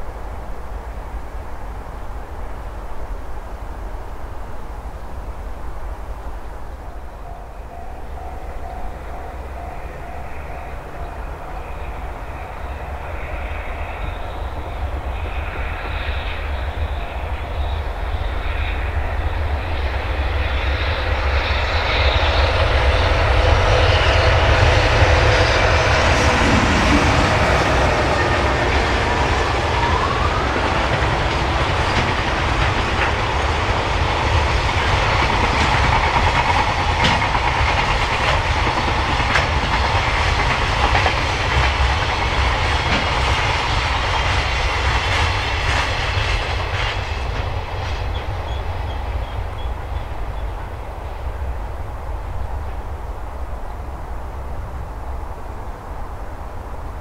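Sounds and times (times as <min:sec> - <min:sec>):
electric locomotive passing: 0:00.0 - 0:57.0
freight cars rumbling: 0:06.0 - 0:57.0
train wheels clattering on rails: 0:07.2 - 0:52.8.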